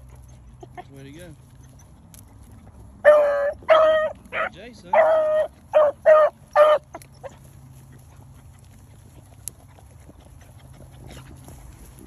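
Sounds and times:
dogs rustling through grass: 0.0s - 12.0s
twigs ticking: 0.0s - 12.0s
dog baying: 3.0s - 7.5s.

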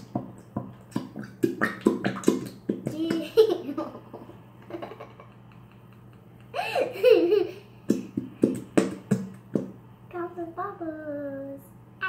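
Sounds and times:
girl giggling: 3.0s - 7.7s.

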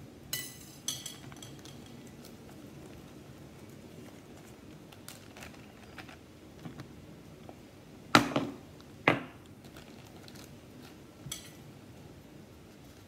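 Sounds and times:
plastic bag crinkling: 1.6s - 6.9s, 9.5s - 11.1s.

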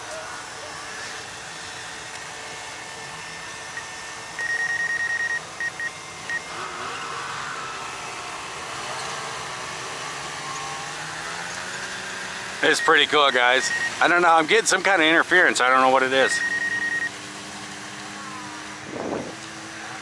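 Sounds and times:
steady background rush: 0.0s - 20.0s
high electronic warning beeps: 3.8s - 6.5s, 12.6s - 14.1s, 16.2s - 17.2s.

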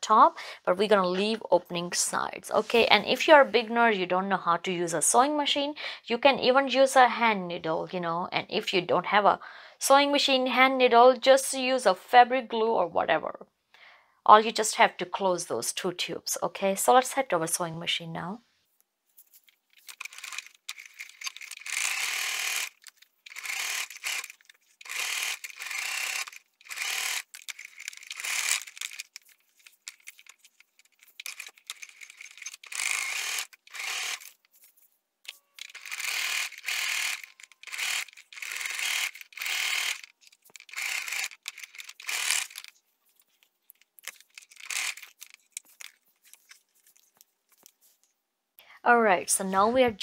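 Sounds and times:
sewing machine stitching: 20.0s - 29.0s, 31.2s - 34.3s, 35.6s - 42.7s.

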